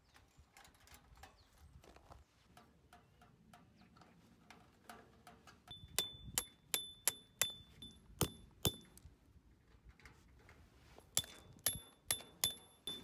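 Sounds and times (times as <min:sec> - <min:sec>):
hammer striking metal tent peg: 0:05.7 - 0:09.0, 0:11.2 - 0:13.0.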